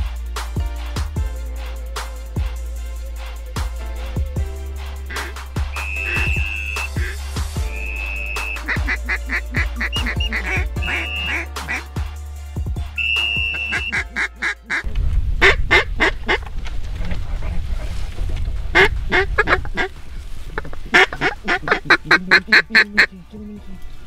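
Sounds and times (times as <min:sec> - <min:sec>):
duck call quacks: 0:05.1 - 0:11.9, 0:13.0 - 0:16.4, 0:18.7 - 0:19.9, 0:20.6 - 0:23.2
high whistle note: 0:05.7 - 0:09.0, 0:09.9 - 0:11.5, 0:13.0 - 0:14.1
wind rumble on microphone: 0:14.8 - 0:22.5.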